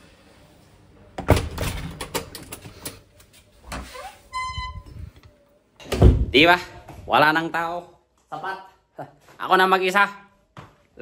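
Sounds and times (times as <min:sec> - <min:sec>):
door squeak: 0:03.7 - 0:05.1.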